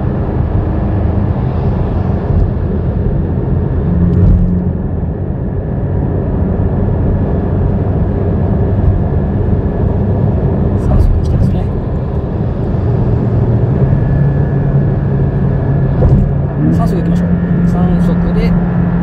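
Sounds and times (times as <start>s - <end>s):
wind noise: 0.0s - 17.6s
car engine running: 0.0s - 19.0s.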